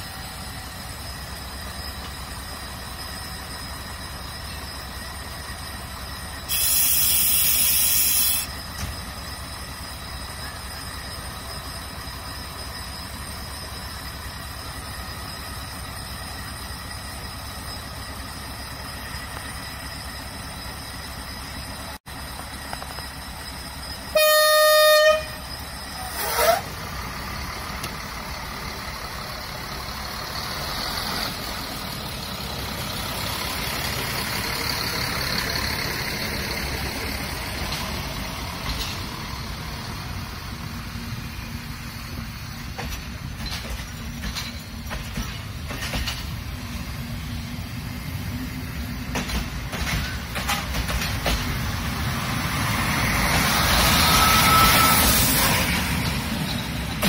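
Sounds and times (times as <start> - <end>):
train engine idling: 0.0 - 57.0
air hiss: 6.4 - 8.7
train horn blast: 24.1 - 25.4
short rising squeal: 25.4 - 26.9, 52.7 - 57.0.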